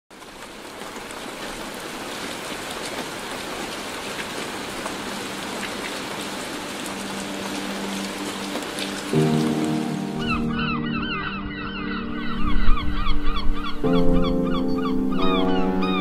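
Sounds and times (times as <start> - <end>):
rain on wet pavement: 0.1 - 10.6.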